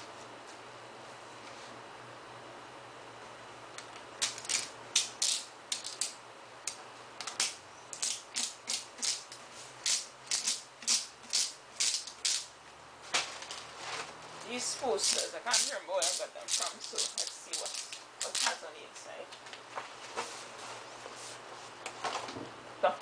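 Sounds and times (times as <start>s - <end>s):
paper posters rustling and crackling: 13.0s - 18.6s.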